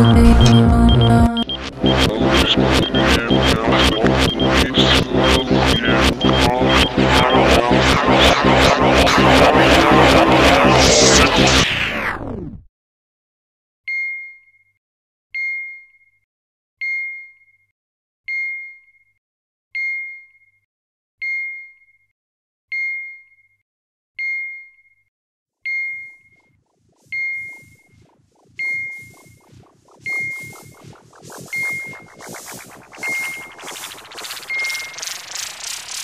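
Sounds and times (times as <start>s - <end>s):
loud music: 0.0s - 12.1s, 28.6s - 36.0s
fast-pulsing electronic buzz: 0.3s - 12.1s, 26.7s - 36.0s.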